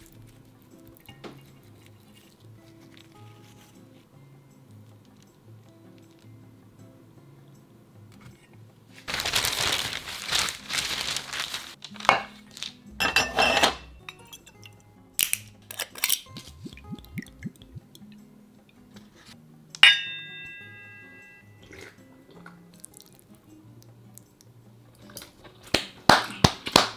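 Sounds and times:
soft background music: 0:00.0 - 0:26.9
rush of handling noise: 0:09.0 - 0:12.7
glass clink ringing: 0:13.0 - 0:14.8, 0:19.8 - 0:21.7.

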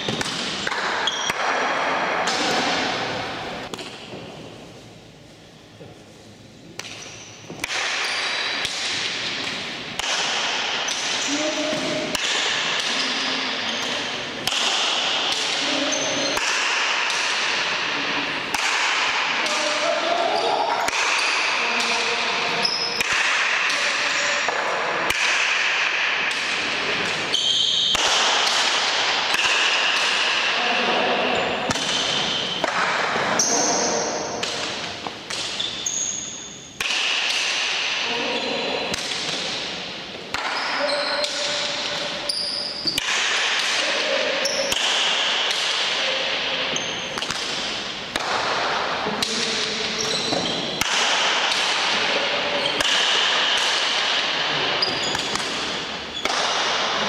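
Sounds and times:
ball cracking off wooden bats and walls: 0:00.0 - 0:02.9, 0:06.8 - 0:13.2, 0:13.8 - 0:15.6, 0:23.0 - 0:30.6, 0:42.8 - 0:44.0, 0:44.6 - 0:57.0.

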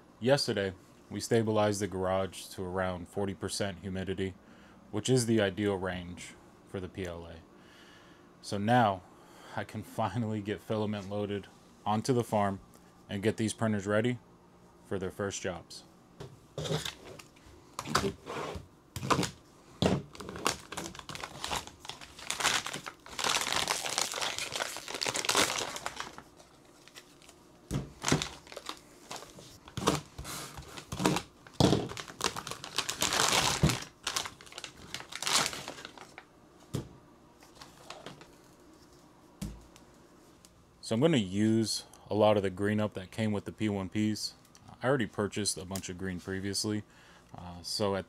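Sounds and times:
plastic bags crinkling and tearing: 0:16.6 - 0:18.2, 0:19.0 - 0:36.2, 0:37.5 - 0:38.4
plastic rustling: 0:16.6 - 0:36.2, 0:37.4 - 0:38.9.

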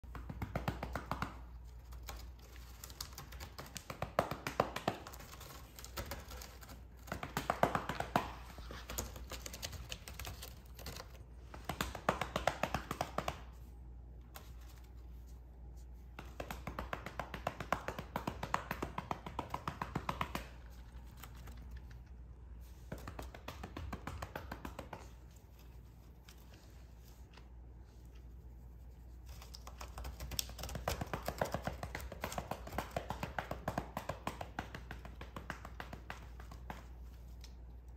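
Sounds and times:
hand patting cat: 0:10.9 - 0:13.7, 0:15.7 - 0:22.0, 0:22.6 - 0:28.3, 0:30.4 - 0:37.6.

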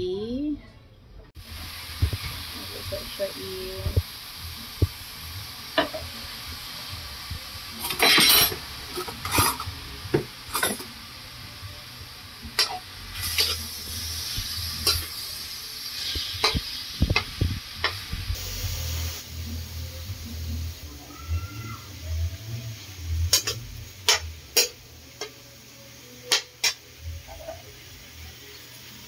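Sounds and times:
steady hiss: 0:01.4 - 0:21.2
metal spatula scraping a wok: 0:07.8 - 0:09.7, 0:12.6 - 0:15.2, 0:16.0 - 0:16.8, 0:23.3 - 0:24.8.

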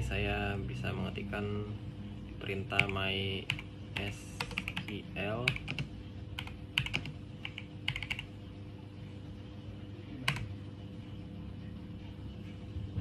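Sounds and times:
faint steady hum: 0:00.0 - 0:13.0
keyboard key presses: 0:05.5 - 0:08.3.

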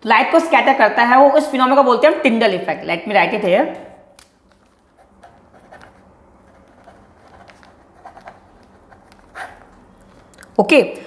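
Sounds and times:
pen scratching on paper: 0:04.8 - 0:10.2.

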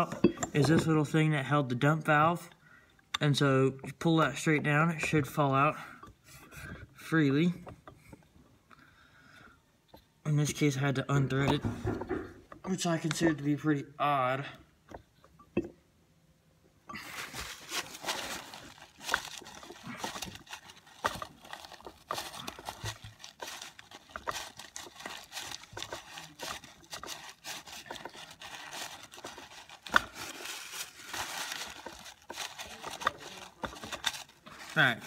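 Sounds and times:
paper towel crinkling: 0:16.9 - 0:35.0.

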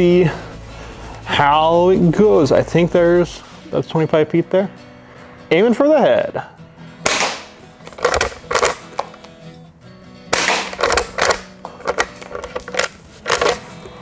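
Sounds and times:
airsoft rifle shots: 0:07.0 - 0:08.8, 0:10.3 - 0:11.5
rifle lever clacks: 0:10.4 - 0:13.6.

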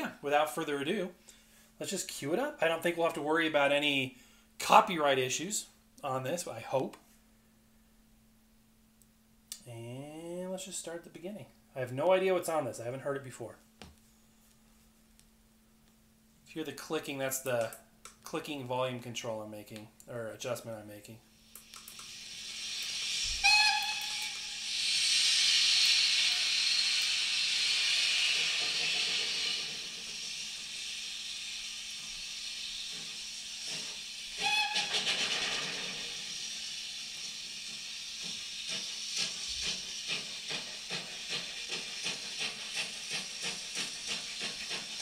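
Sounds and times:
hiss of escaping steam: 0:21.4 - 0:45.0
locomotive exhaust chuffs: 0:21.8 - 0:45.0
steam whistle blast: 0:22.1 - 0:39.6.

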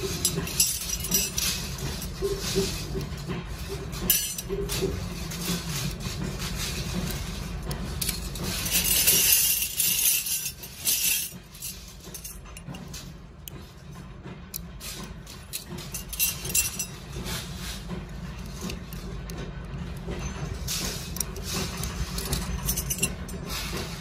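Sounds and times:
metal clip parts clinking: 0:00.1 - 0:02.2, 0:15.3 - 0:16.9, 0:21.2 - 0:23.4.

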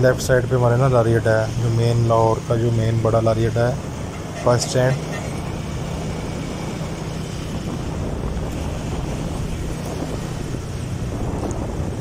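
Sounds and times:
road rumble: 0:00.0 - 0:12.0
vehicle engine hum: 0:00.0 - 0:12.0
wind noise on microphone: 0:03.4 - 0:12.0.

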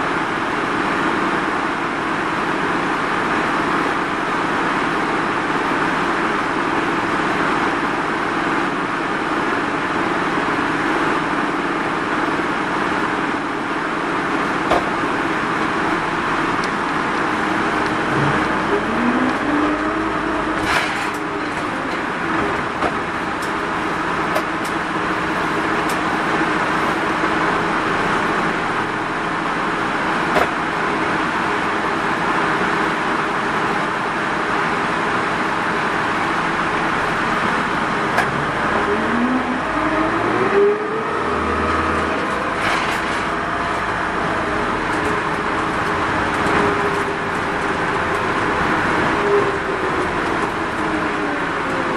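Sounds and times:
bus engine running: 0:00.0 - 0:51.9
road noise: 0:00.0 - 0:51.9
clicks and knocks from bus body: 0:14.6 - 0:15.0, 0:20.6 - 0:23.6, 0:24.3 - 0:24.8, 0:30.3 - 0:30.6.

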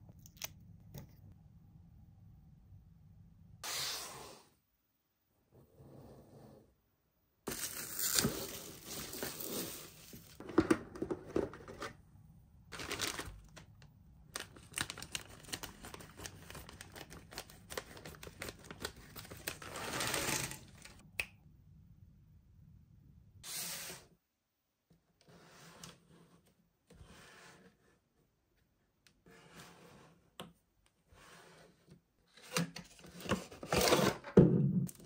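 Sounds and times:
plastic packaging crinkling and tearing: 0:12.7 - 0:21.0.

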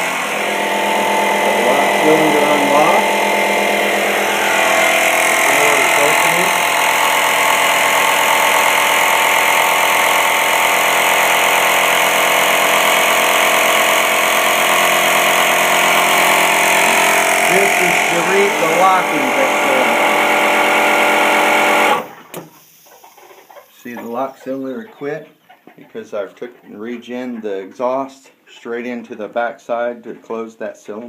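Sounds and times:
pneumatic door opener running with hiss: 0:00.0 - 0:23.0.

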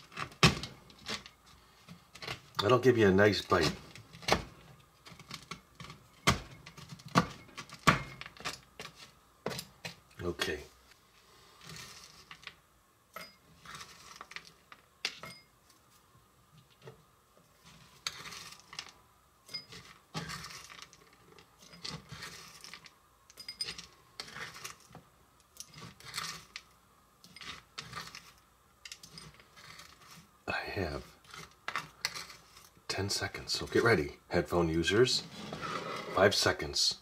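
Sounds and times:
spoon scraping plastic board: 0:11.6 - 0:12.6, 0:13.5 - 0:14.6, 0:17.6 - 0:19.0, 0:19.6 - 0:22.9, 0:23.6 - 0:24.9, 0:25.6 - 0:30.3, 0:31.2 - 0:32.8, 0:35.2 - 0:36.4.

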